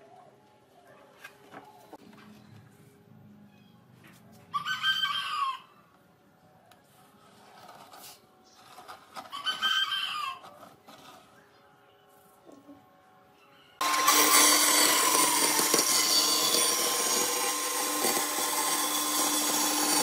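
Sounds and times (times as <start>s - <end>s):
rooster crowing: 4.5s - 5.8s, 9.3s - 10.6s.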